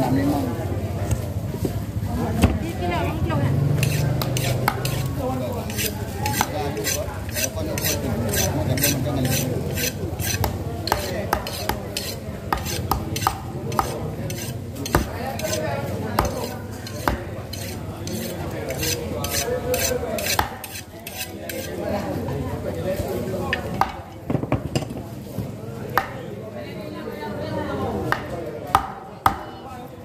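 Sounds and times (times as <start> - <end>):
knife cutting and scraping fish: 3.8 - 21.9
knife tapping on wooden board: 12.5 - 14.0.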